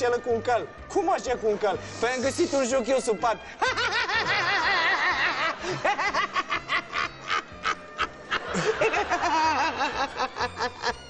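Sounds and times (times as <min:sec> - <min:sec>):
man laughing in rapid bursts: 0:03.6 - 0:11.0.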